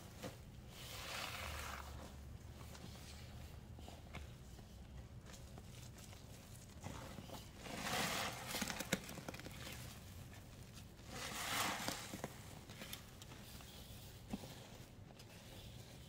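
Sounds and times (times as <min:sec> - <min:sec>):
small crackles: 0:08.2 - 0:13.4.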